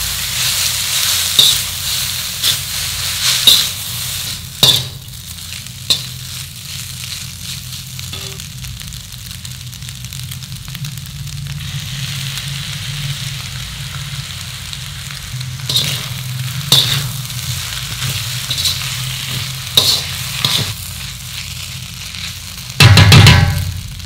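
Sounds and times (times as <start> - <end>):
noodles sizzling in a wok: 0.0 - 24.0
metal spatula scraping and knocking: 8.1 - 8.4, 15.7 - 16.1, 16.7 - 17.1, 18.0 - 20.8.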